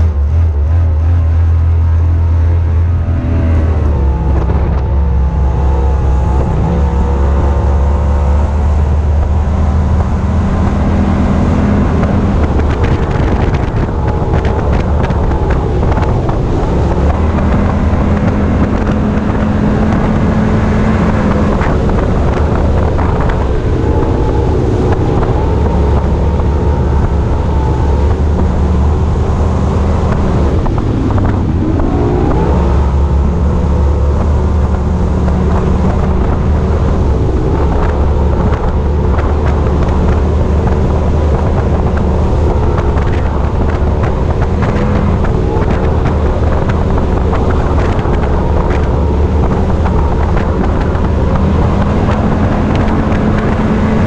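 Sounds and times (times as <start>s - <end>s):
outboard engine drone: 0.0s - 54.0s
wind buffeting microphone: 0.0s - 54.0s.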